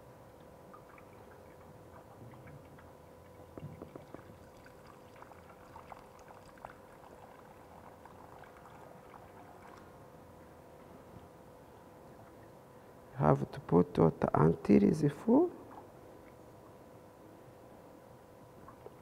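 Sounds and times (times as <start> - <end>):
faint steady hum: 0.0 - 19.0
water splashing and dripping: 0.7 - 9.9.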